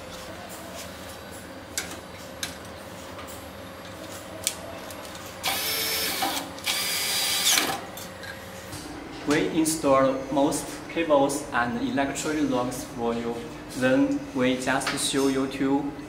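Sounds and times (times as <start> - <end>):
cordless drill driving screws: 5.4 - 7.8.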